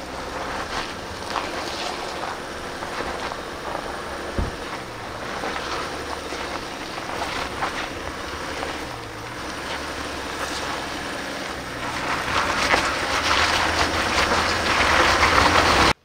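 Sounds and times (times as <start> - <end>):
diesel engine under load: 0.0 - 16.0
tyres crunching over stones: 0.0 - 16.0.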